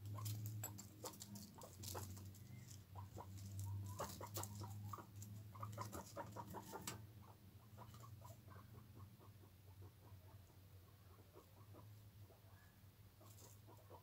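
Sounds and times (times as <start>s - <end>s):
pattering over gravel and straw: 0.0s - 6.9s
cavies chirping: 0.0s - 14.0s.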